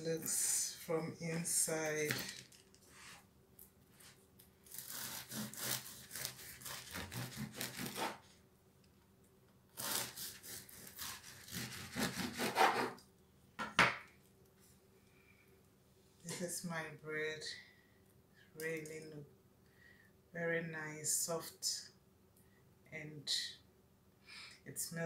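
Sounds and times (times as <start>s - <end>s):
knife sawing through crusty bread: 4.7s - 8.3s, 9.8s - 13.0s.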